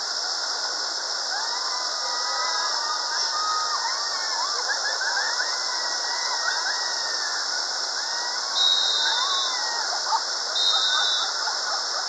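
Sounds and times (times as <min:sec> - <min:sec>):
rapids rushing around rocks: 0:00.0 - 0:12.0
faint voices calling out: 0:01.2 - 0:12.0.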